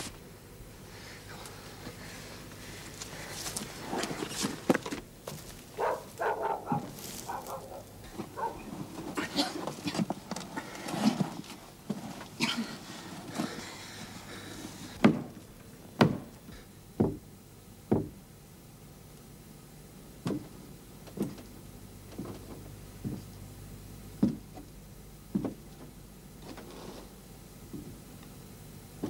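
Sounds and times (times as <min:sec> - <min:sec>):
heavy footsteps on wooden boards: 0:15.0 - 0:15.4, 0:16.0 - 0:17.3, 0:17.9 - 0:18.2, 0:22.1 - 0:23.3, 0:24.2 - 0:24.7, 0:25.3 - 0:25.9.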